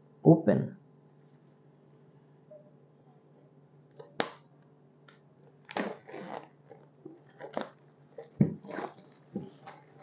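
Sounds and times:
plastic shrink wrap crinkling: 5.8 - 10.0.

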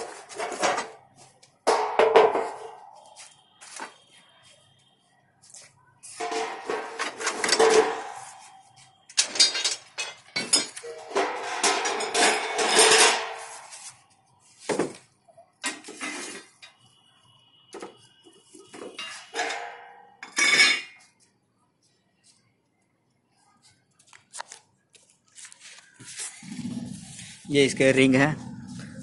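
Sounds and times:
metal parts clanking on concrete: 0.0 - 1.0, 1.6 - 2.9, 6.2 - 8.5, 9.1 - 13.7, 15.6 - 16.8, 18.7 - 21.2.

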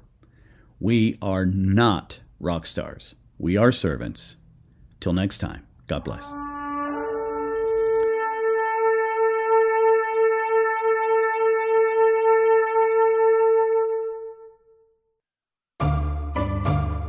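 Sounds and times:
wind instrument long note: 6.0 - 14.6.

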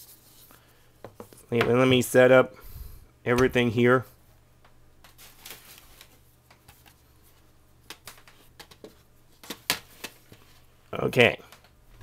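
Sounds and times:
rustling of handled magazines: 5.0 - 12.0.

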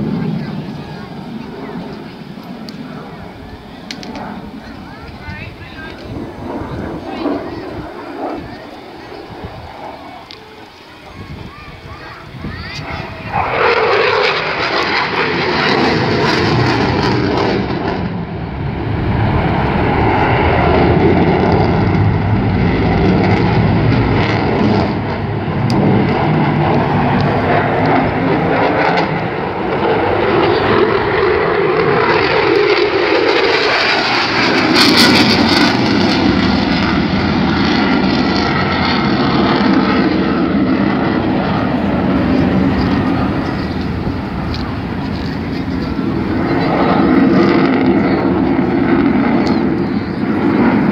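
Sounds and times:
fighter jet engine roar: 0.0 - 50.9.

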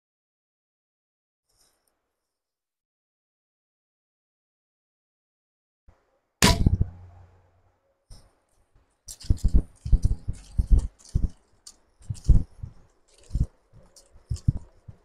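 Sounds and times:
sharp knock: 6.4 - 7.2
footsteps on ground: 9.1 - 14.7.

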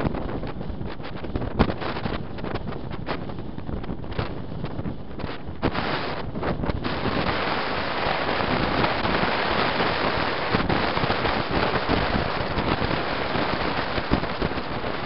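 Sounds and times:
wind crackling on microphone: 0.0 - 15.0
road noise: 5.0 - 15.0.

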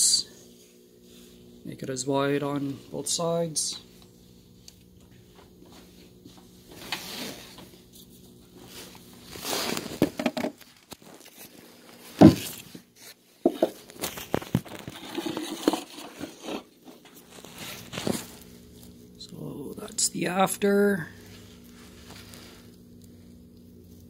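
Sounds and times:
handling noise rubbing and scraping: 5.2 - 19.0
faint low hum: 15.0 - 24.0.

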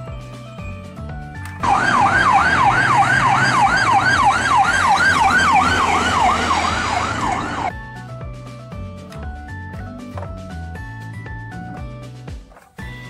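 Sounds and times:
ambulance siren yelping: 1.6 - 7.7
low vehicle rumble: 1.6 - 7.7.

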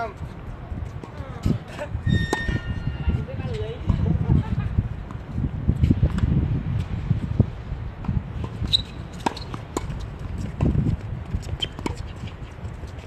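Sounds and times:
tennis ball bounces: 8.0 - 12.5.

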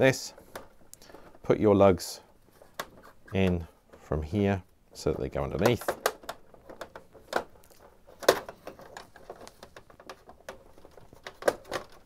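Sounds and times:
plastic panel clicks and knocks: 5.5 - 12.0.

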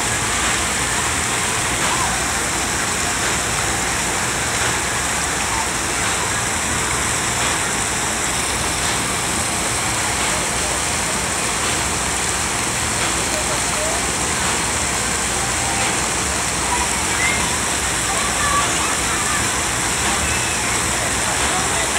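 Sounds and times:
water fountains spraying: 0.0 - 21.9
indistinct voices: 5.0 - 21.9.

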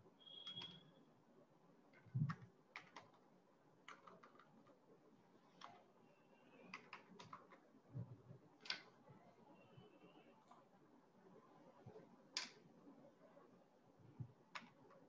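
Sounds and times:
computer keyboard typing: 0.3 - 0.8, 1.9 - 3.2, 3.8 - 4.8, 6.7 - 7.7.

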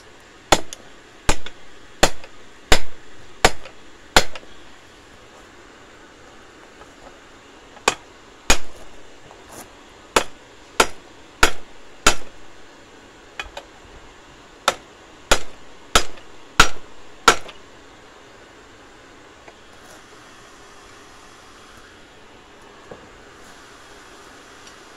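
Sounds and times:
hammer striking metal on anvil: 0.5 - 4.5, 7.8 - 8.9, 10.2 - 12.4, 14.6 - 17.6.

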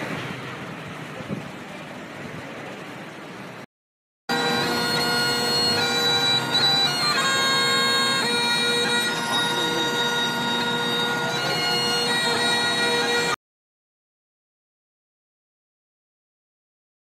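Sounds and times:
bagpipe-like drone music: 4.3 - 13.4.

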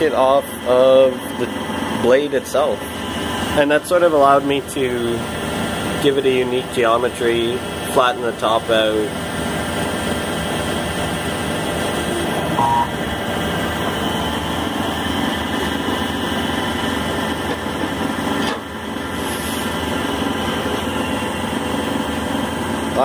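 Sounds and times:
lathe running: 0.0 - 7.9
brief higher tone: 12.1 - 13.0.

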